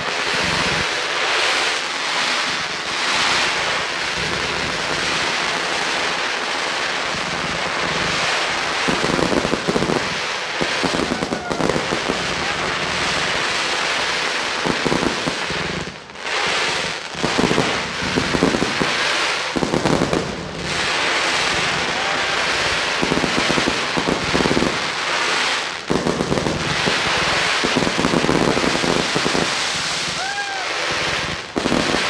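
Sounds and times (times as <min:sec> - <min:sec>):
fireworks bursting: 0:00.0 - 0:32.0
fireworks crackling: 0:00.0 - 0:32.0.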